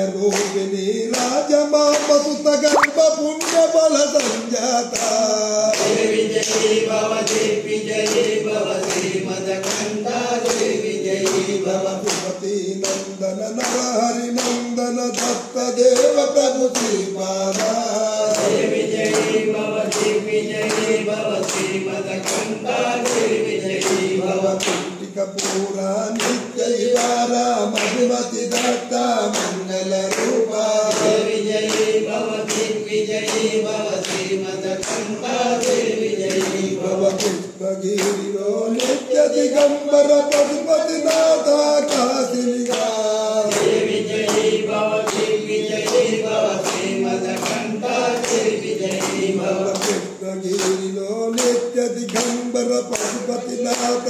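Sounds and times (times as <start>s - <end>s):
voices singing a devotional chant: 0.0s - 54.0s
sharp hand claps: 0.2s - 54.0s.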